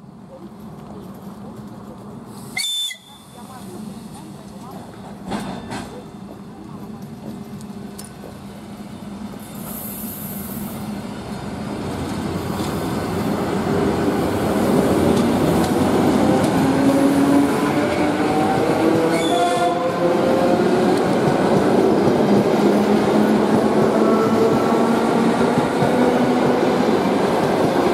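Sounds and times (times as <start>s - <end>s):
electric train accelerating past: 7.8s - 27.9s.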